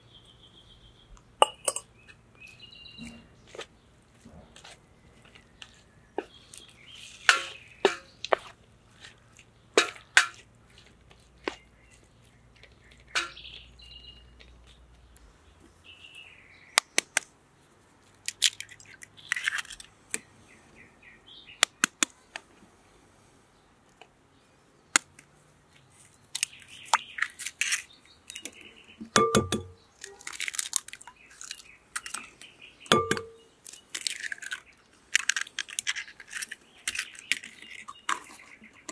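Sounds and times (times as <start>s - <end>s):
birds chirping: 0.0s - 17.2s, 20.2s - 22.4s, 25.7s - 30.2s, 30.9s - 34.9s, 35.7s - 38.9s
eggs knocked on glass bowl: 1.4s - 1.9s, 29.1s - 29.8s, 32.9s - 33.4s.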